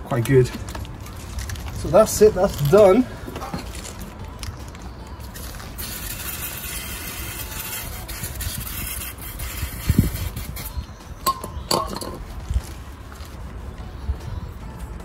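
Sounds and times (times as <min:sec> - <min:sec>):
aerosol spray can hissing: 0:05.3 - 0:10.8.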